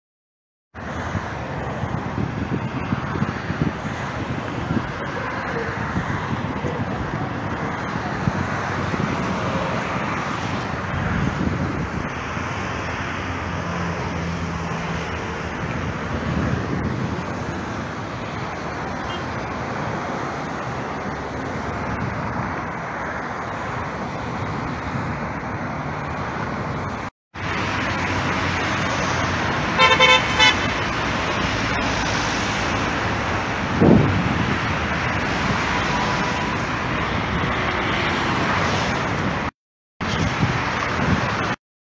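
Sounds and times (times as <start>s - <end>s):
road traffic passing: 0.8s - 41.6s
car horn toots: 19.0s - 19.4s, 29.8s - 30.7s.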